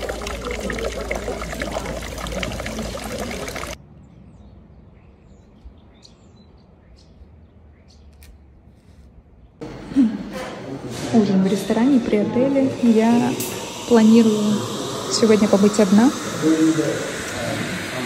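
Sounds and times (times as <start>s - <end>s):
fountain water splashing: 0.0s - 3.8s, 13.0s - 18.0s.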